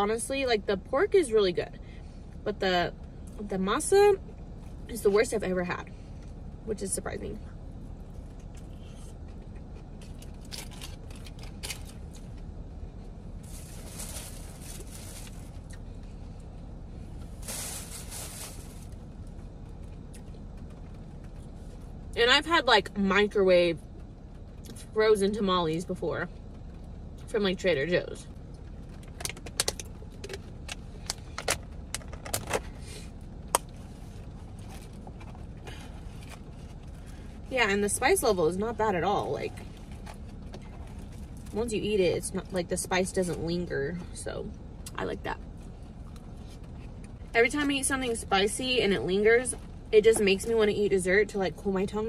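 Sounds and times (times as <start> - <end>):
low rumble: 0.0 - 52.0
aluminium foil rustling: 13.4 - 15.6, 17.3 - 19.0.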